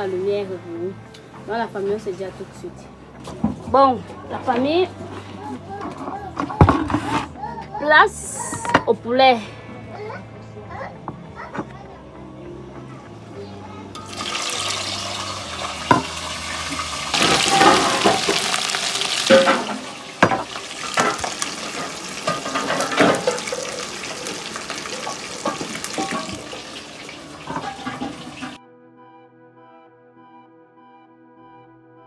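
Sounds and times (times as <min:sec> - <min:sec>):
background music: 0:00.0 - 0:32.0
spatula scraping and knocking: 0:05.8 - 0:07.4
chicken sizzling while frying: 0:14.0 - 0:28.6.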